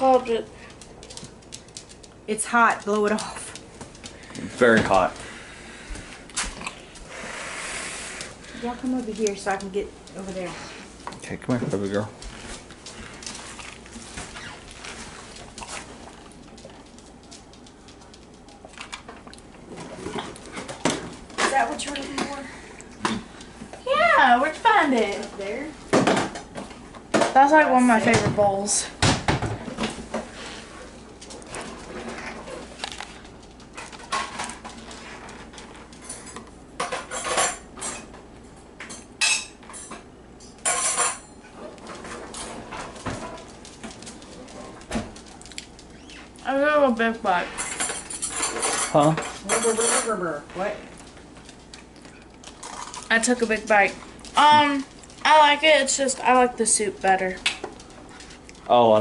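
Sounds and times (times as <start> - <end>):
cutlery clinking against a dish: 47.6 - 50.1.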